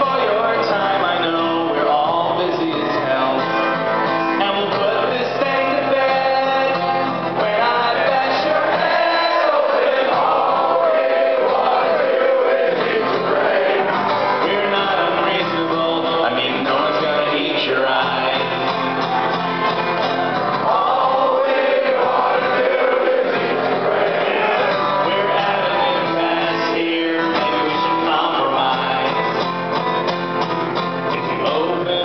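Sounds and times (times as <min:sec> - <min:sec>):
man singing: 0:00.0 - 0:19.0, 0:24.2 - 0:29.6, 0:31.1 - 0:32.0
acoustic guitar: 0:00.0 - 0:32.0
crowd singing along: 0:00.0 - 0:32.0.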